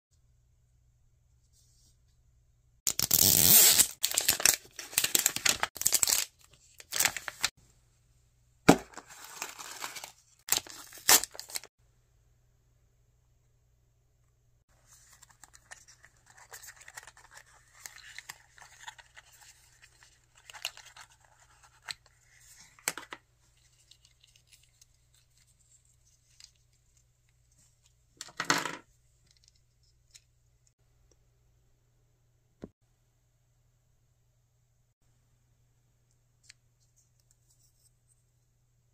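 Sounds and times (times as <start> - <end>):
paper packaging crinkling and tearing: 2.9 - 7.5, 8.7 - 11.7, 14.8 - 22.0.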